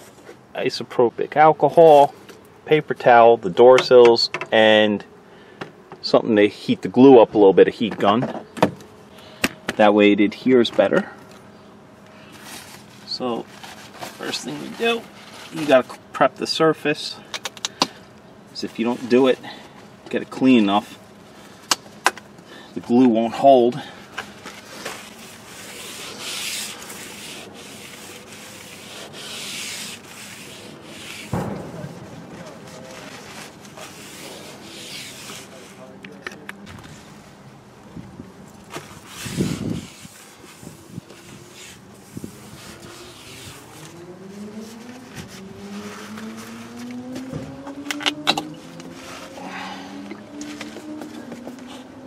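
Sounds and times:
paper towel rubbing on paint: 12.3 - 16.0, 24.5 - 31.4, 32.4 - 36.0, 38.9 - 46.8
vehicle engine accelerating: 42.6 - 52.0.

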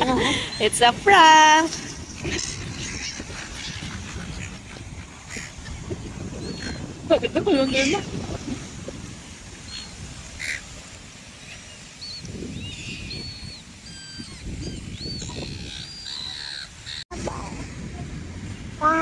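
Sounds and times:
wind and surf rumble: 0.0 - 19.0
gulls squawking: 2.2 - 8.1, 9.7 - 10.7, 11.4 - 17.0.

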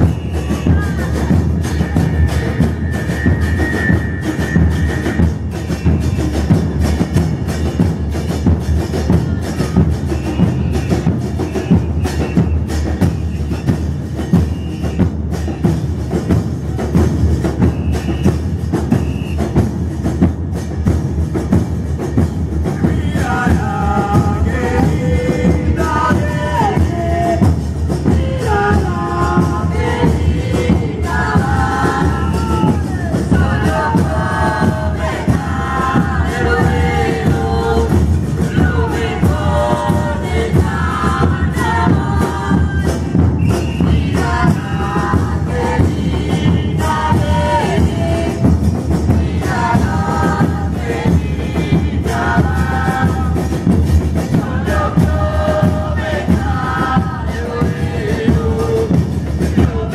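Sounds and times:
group singing: 0.0 - 7.8, 22.6 - 59.9
bass drums with cymbals: 0.0 - 59.9.

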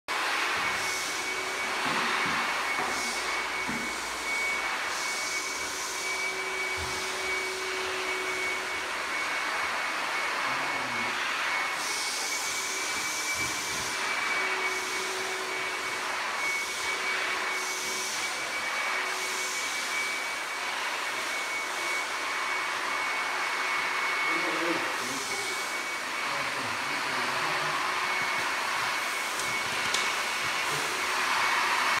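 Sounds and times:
pressure washer high whine: 0.1 - 32.0
pressure washer jet hissing on tile: 24.3 - 27.7.

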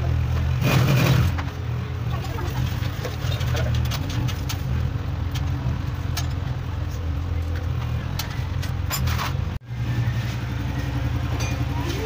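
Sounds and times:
motorcycle engine idling: 9.7 - 12.0.

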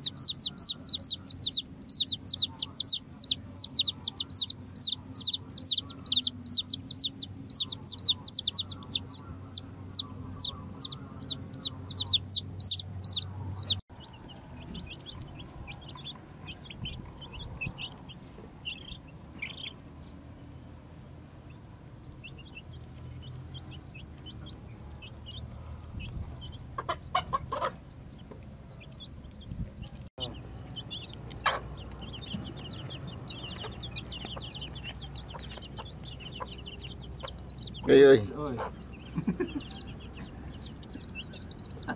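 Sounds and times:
loud rapid falling chick peeps: 0.0 - 20.4, 21.3 - 41.9
chicks peeping: 0.0 - 41.9.

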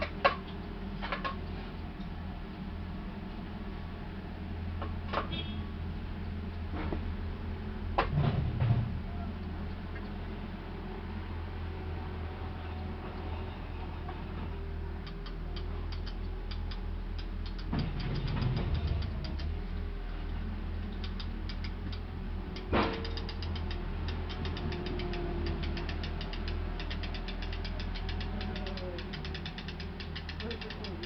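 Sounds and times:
dry high ticking: 15.0 - 19.6, 20.8 - 31.0.

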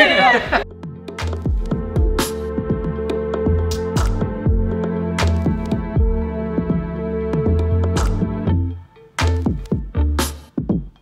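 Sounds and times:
electronic music: 0.0 - 11.0
deep kick drums: 0.6 - 8.6.

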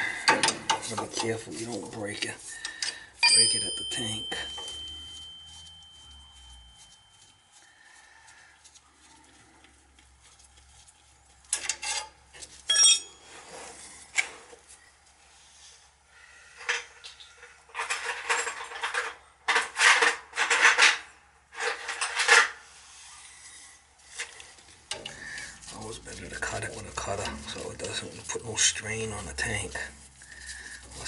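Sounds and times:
metal tools clinking and scraping: 0.0 - 7.6, 11.5 - 13.5, 16.6 - 22.6, 23.5 - 31.0
bright metallic ring: 3.2 - 7.6, 12.7 - 13.3.

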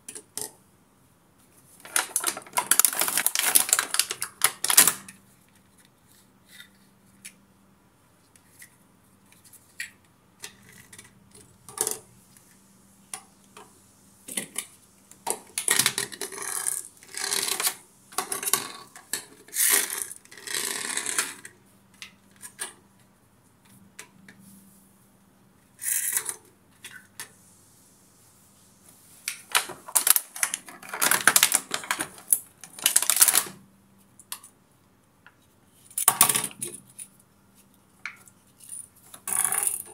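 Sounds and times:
plastic packaging crinkling: 1.8 - 5.1, 29.5 - 33.6
plastic toys clattering: 1.8 - 5.2, 15.3 - 21.5, 29.5 - 33.6.

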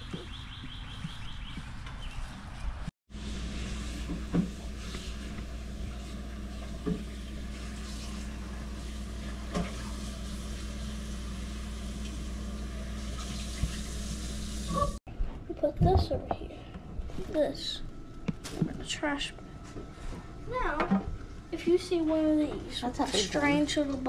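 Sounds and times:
running water hiss: 7.1 - 15.0.

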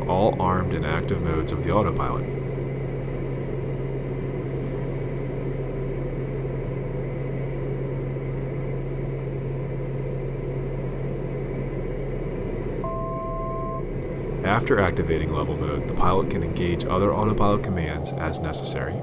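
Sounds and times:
aircraft cabin drone: 0.0 - 19.0
electronic cockpit beep: 12.8 - 13.8.

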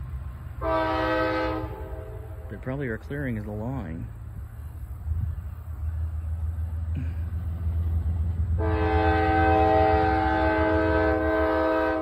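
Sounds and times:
diesel engine rumble: 0.0 - 12.0
locomotive horn blast: 0.6 - 2.6, 8.5 - 12.0.

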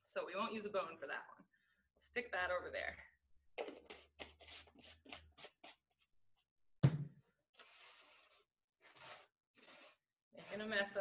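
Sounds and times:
scratchy rubbing on tabletop: 7.6 - 11.0.

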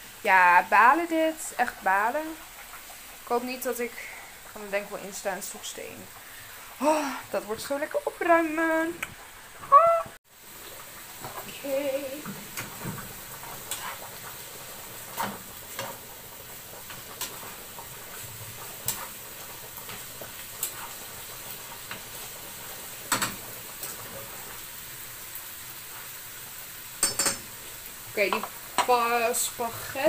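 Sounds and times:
bacon sizzling in a pan: 0.0 - 30.0
utensil scraping a pan: 13.4 - 14.3.

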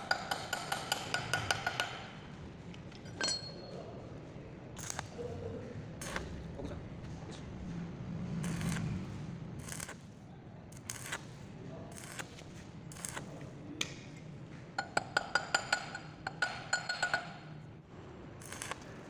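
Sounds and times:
metal tool tapping metal: 0.0 - 2.2, 2.9 - 3.7, 14.8 - 17.6
welding arc crackling: 4.8 - 5.1, 8.4 - 10.1, 10.7 - 13.3, 18.4 - 19.0.

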